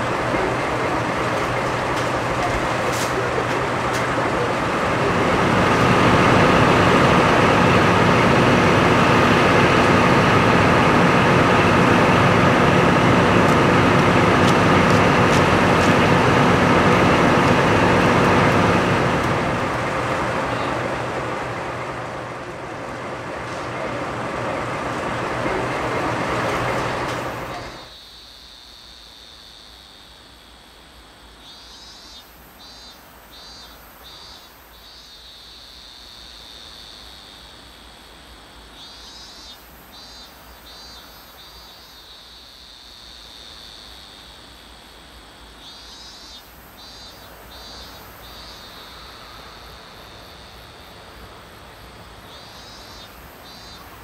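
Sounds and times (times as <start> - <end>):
crowd noise: 0.0 - 27.9
diesel locomotive idling: 0.0 - 27.9, 46.7 - 54.0
insects chirping: 0.0 - 54.0.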